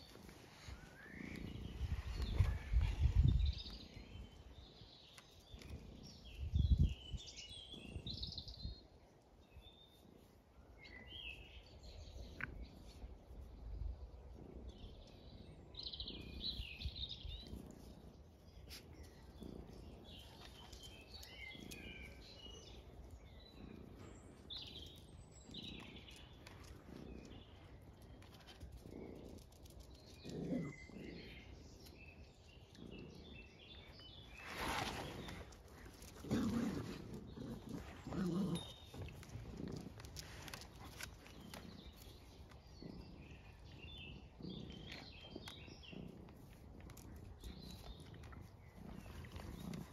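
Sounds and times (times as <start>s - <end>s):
dogs growling: 0.0s - 8.6s, 11.8s - 49.9s
small birds chirping: 0.0s - 49.9s
rustling scuffle on grass: 34.4s - 35.5s.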